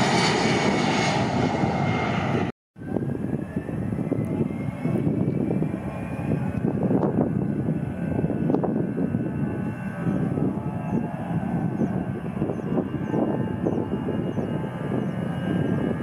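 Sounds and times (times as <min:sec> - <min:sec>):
jet engines spooling up: 0:00.0 - 0:02.5.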